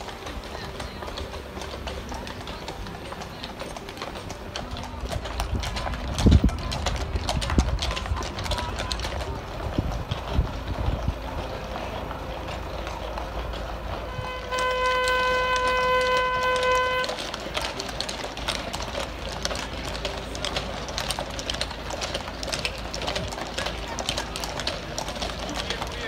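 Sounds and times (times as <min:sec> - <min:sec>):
horse hooves clopping on brick: 0:00.0 - 0:26.0
horn steady note: 0:13.8 - 0:17.4.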